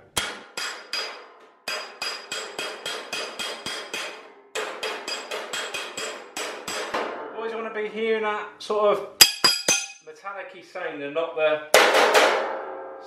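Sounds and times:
metallic hammering on steel: 0:00.0 - 0:07.3, 0:09.2 - 0:10.0, 0:11.8 - 0:12.8.

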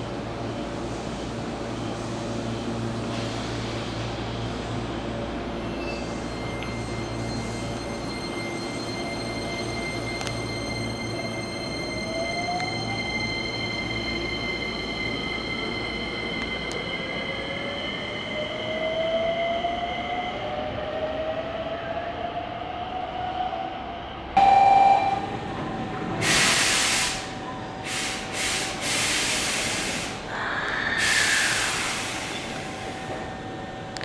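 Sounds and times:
loud hissing bursts: 0:26.2 - 0:27.3.

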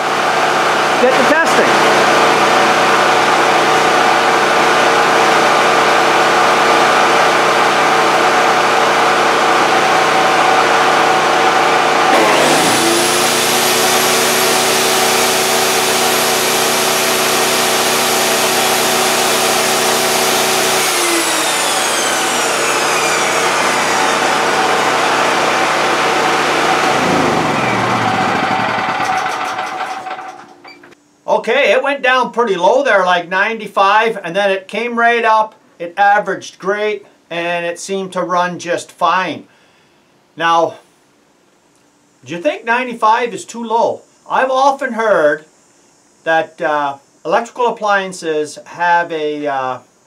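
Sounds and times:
portable generator running: 0:00.0 - 0:31.0
table saw whine: 0:00.0 - 0:31.0.

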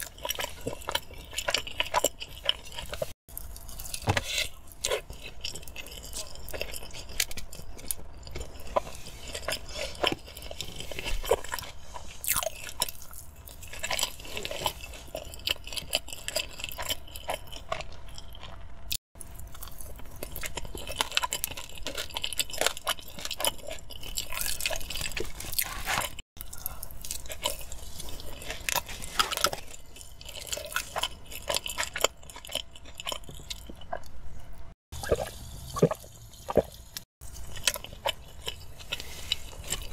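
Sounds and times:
wet chewing and smacking: 0:00.0 - 0:39.9.

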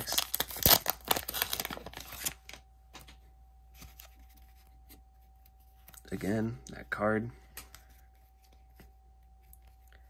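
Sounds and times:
wrapper crinkling: 0:00.0 - 0:02.6.

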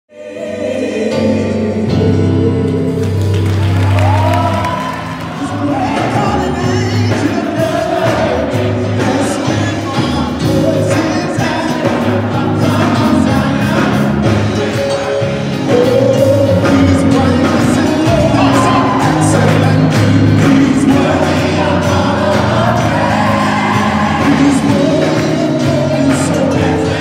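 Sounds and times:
gospel singing: 0:00.1 - 0:27.0.

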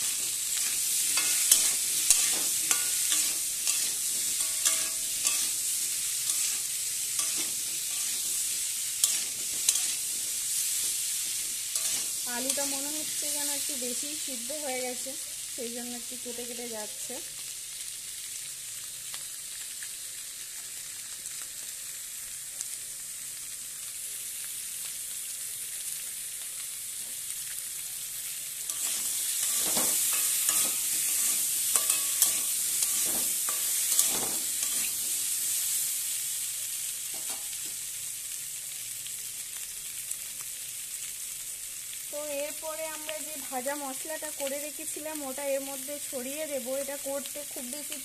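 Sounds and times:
spatula scraping a pan: 0:00.0 - 0:13.4, 0:28.7 - 0:35.5, 0:37.1 - 0:37.6
potatoes sizzling in oil: 0:00.0 - 0:48.0.

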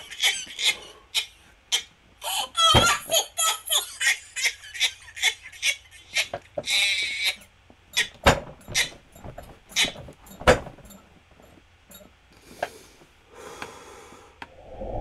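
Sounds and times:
breathy exhales: 0:12.4 - 0:15.0.

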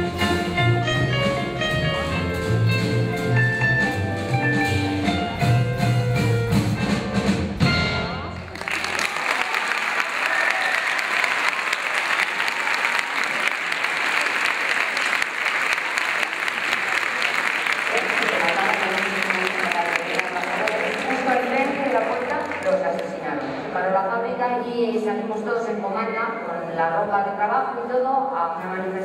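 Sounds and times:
live band playing: 0:00.0 - 0:08.6
audience applause: 0:08.4 - 0:23.2.

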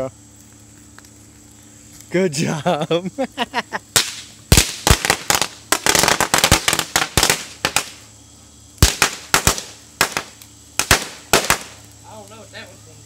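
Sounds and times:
firecrackers banging: 0:03.9 - 0:08.1, 0:08.8 - 0:11.9.

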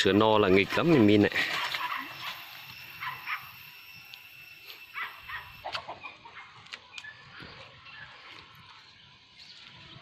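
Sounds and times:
short animal calls: 0:04.9 - 0:06.5.

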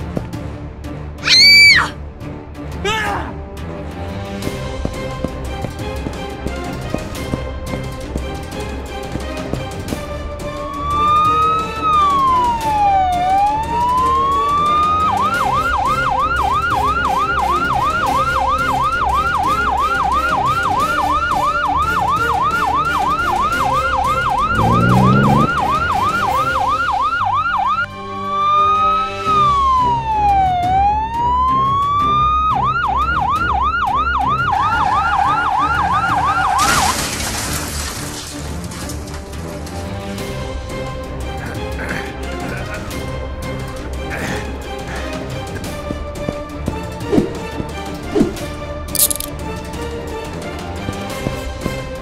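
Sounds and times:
siren wailing and yelping: 0:01.2 - 0:02.0, 0:10.7 - 0:36.6.

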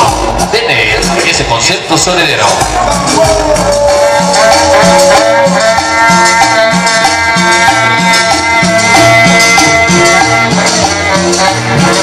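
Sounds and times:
cumbia music over sound system: 0:00.0 - 0:12.0.

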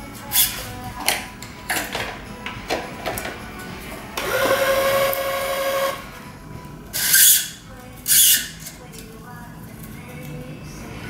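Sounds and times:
background music: 0:00.0 - 0:11.0
tension head motor running: 0:04.1 - 0:06.1.

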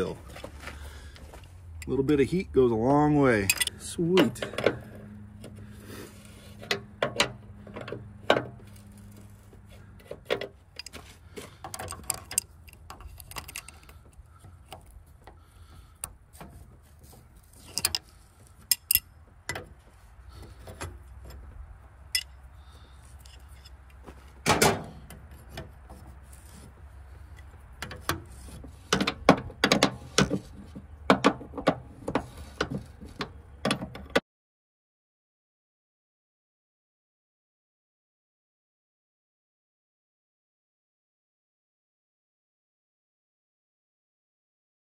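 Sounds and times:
wrench clinking on metal fittings: 0:03.4 - 0:04.6, 0:17.6 - 0:18.0, 0:18.6 - 0:19.6.

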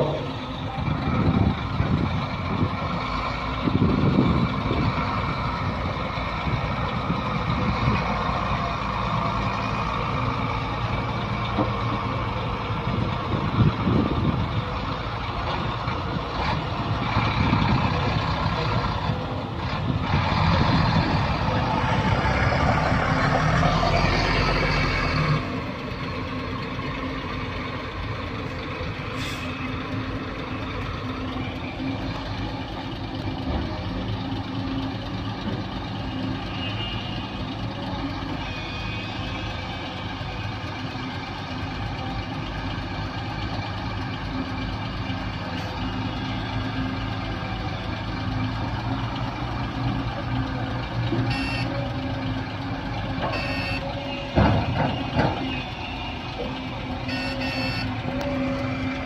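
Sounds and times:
excavator diesel engine running: 0:00.0 - 0:59.0
truck reversing beeper: 0:35.8 - 0:40.6, 0:51.1 - 0:52.4, 0:53.1 - 0:59.0.

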